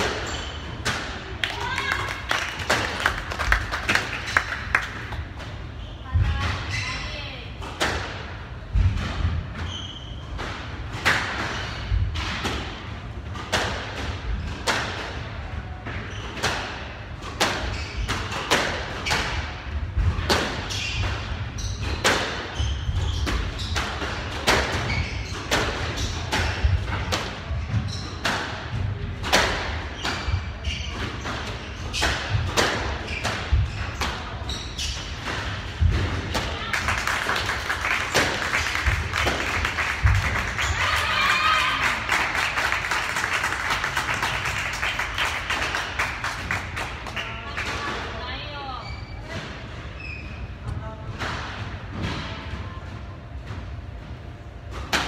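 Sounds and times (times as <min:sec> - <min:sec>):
squash ball cracking off racquets: 0:35.2 - 0:40.8.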